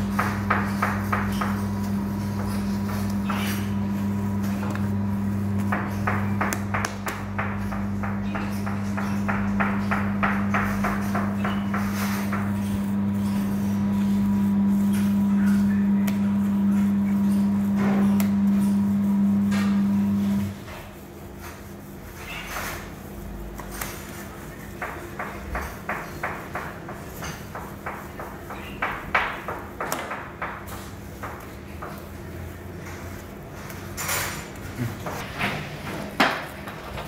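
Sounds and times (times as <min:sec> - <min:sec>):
machine electrical hum: 0:00.0 - 0:37.0
hands slapping minced meat: 0:05.6 - 0:07.4, 0:16.0 - 0:16.3.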